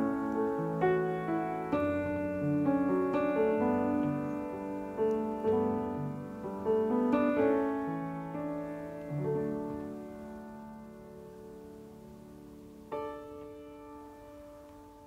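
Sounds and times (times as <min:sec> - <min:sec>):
gentle solo piano: 0:00.0 - 0:15.0.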